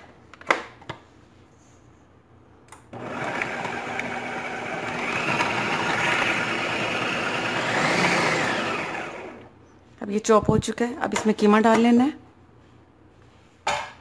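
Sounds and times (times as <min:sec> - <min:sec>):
food processor chopping: 0:03.0 - 0:09.5.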